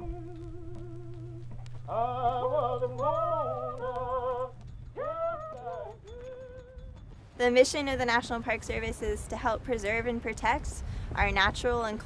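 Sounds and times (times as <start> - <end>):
steady low drone note: 0.0 - 6.5
several voices singing: 0.0 - 6.6
singing with vibrato: 0.0 - 7.6.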